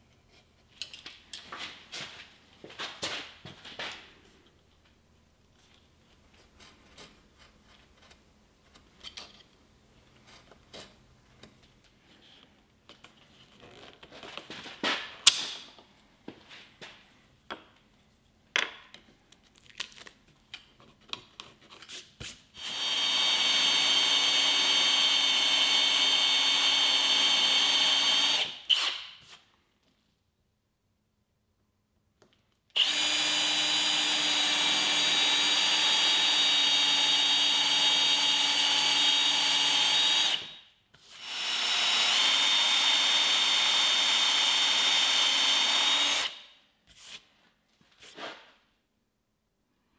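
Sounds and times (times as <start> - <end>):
tools and wood knocking on bench: 18.5 - 19.1
electric power tool running: 22.6 - 28.9, 32.8 - 40.5, 41.2 - 46.4.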